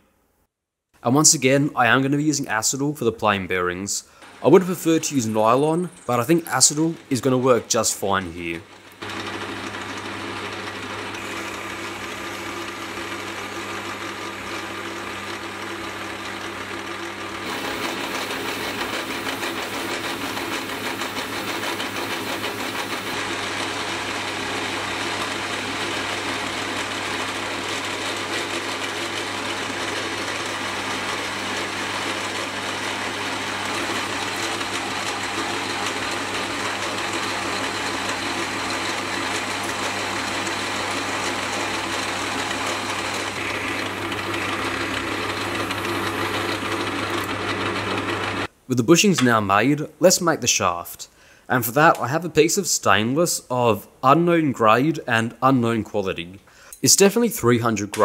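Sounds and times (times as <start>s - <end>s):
motor and gear hum: 9.0s - 23.2s, 33.6s - 48.5s
metal lathe cutting plastic: 9.0s - 23.3s, 24.6s - 48.5s.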